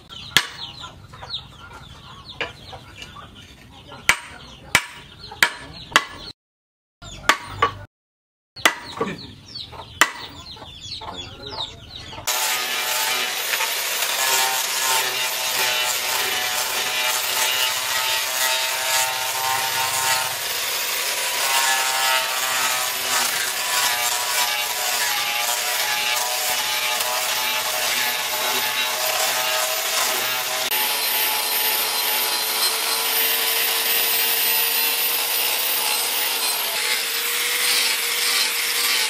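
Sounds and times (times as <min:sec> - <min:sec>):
hammer striking wooden handle: 0:00.4 - 0:00.6, 0:04.1 - 0:06.3, 0:07.3 - 0:07.9, 0:08.6 - 0:09.0, 0:10.0 - 0:10.3
angle grinder sanding wood: 0:12.3 - 0:39.0.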